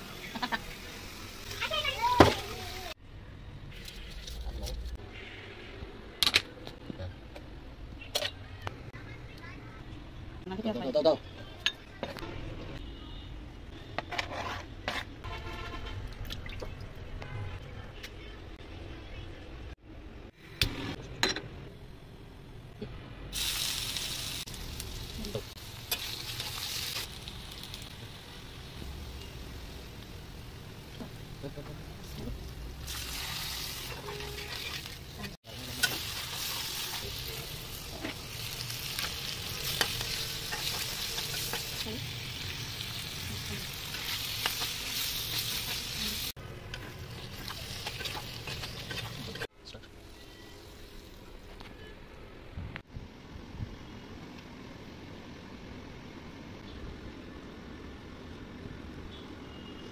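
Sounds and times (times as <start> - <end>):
onions sizzling in oil: 0.0 - 3.0, 23.3 - 51.2
metal spatula stirring: 46.8 - 49.5.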